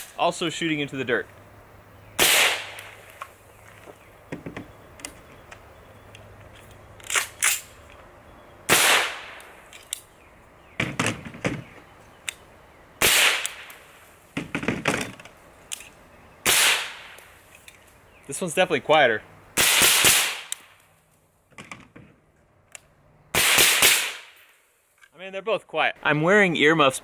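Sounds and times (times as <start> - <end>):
suppressed rifle shots: 2.2 - 3.1, 8.7 - 9.4, 13.0 - 13.8, 16.4 - 17.2, 19.6 - 20.7, 23.4 - 24.4
knocks: 4.3 - 4.7.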